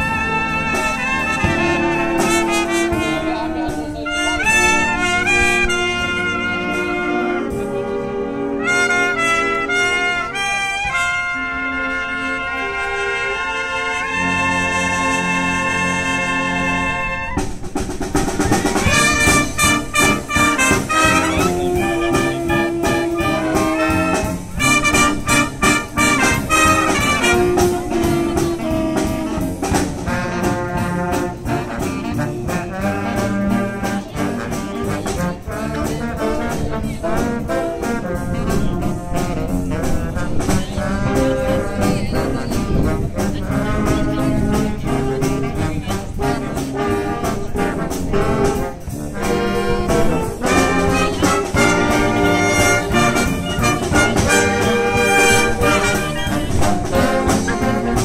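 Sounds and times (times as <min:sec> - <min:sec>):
wind band playing jazz: 0:00.0 - 0:58.0
drum hits: 0:17.4 - 0:33.9.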